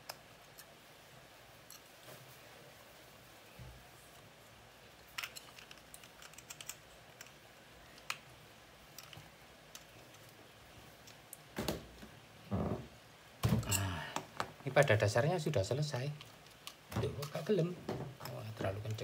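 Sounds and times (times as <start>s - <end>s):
handling knocks: 11.6s - 14.6s.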